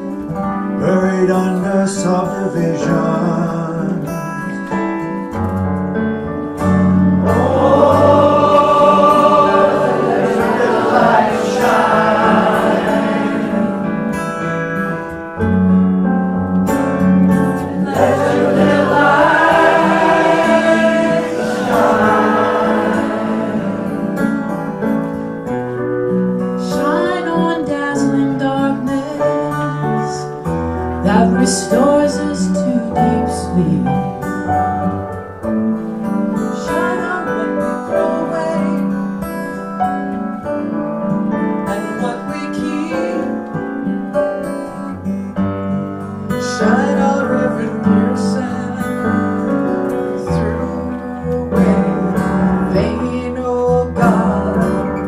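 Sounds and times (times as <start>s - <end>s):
keyboard and guitar accompaniment: 0.0s - 55.0s
people singing into a microphone: 7.2s - 14.3s, 17.6s - 24.8s, 50.2s - 55.0s.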